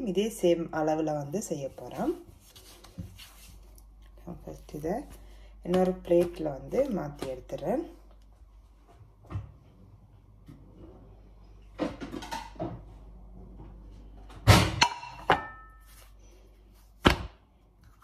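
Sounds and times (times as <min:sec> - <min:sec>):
soft handling sounds: 0:01.5 - 0:09.0.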